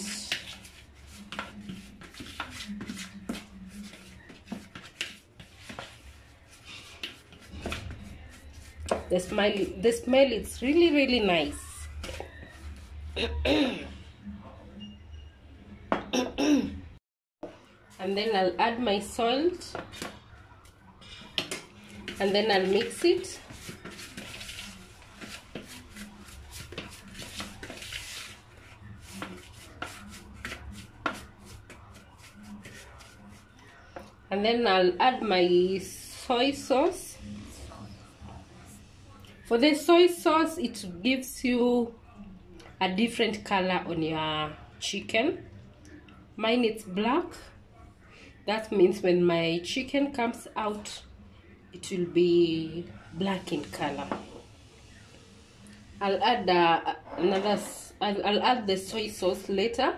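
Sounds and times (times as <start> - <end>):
spoon scraping plastic bowl: 21.2 - 33.6, 57.0 - 57.9.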